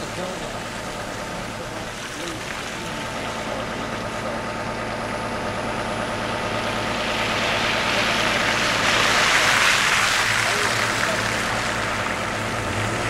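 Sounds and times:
bus engine idling: 0:00.0 - 0:13.0
tyres hissing through slush: 0:07.0 - 0:13.0.

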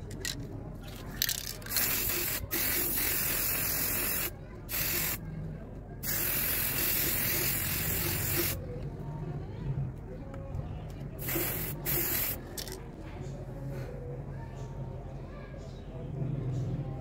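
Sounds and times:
spray paint can hissing: 0:01.2 - 0:05.2, 0:06.0 - 0:08.6, 0:11.2 - 0:12.8.

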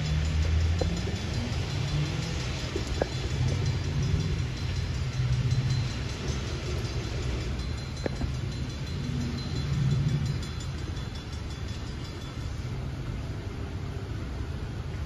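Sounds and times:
low engine rumble: 0:00.0 - 0:15.0
rain hiss: 0:00.0 - 0:15.0.

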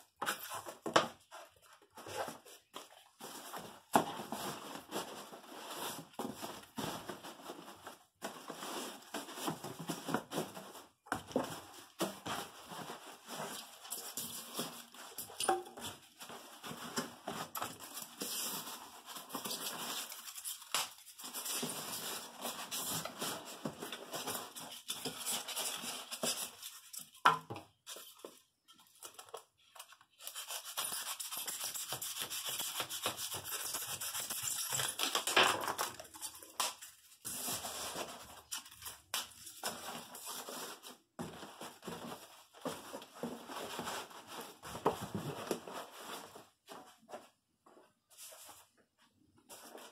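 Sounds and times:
styrofoam scraping and squeaking: 0:12.4 - 0:26.9, 0:30.1 - 0:39.0.

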